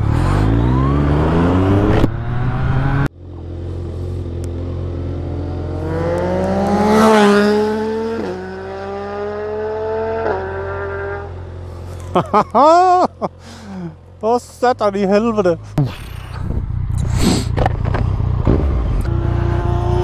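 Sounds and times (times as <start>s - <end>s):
motorcycle accelerating past: 0.0s - 3.1s, 4.1s - 11.4s, 17.9s - 20.0s
motorcycle engine revving: 0.0s - 11.6s, 15.7s - 20.0s.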